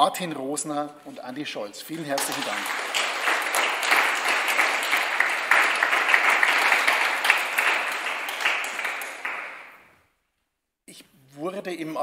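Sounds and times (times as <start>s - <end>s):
audience applauding: 2.1s - 9.9s.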